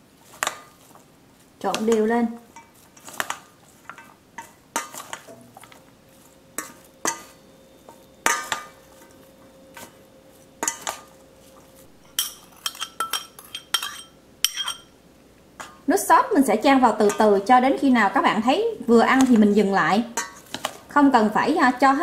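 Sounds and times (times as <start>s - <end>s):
utensils clinking metal bowl: 1.6s - 14.9s, 16.9s - 17.5s, 19.1s - 20.8s.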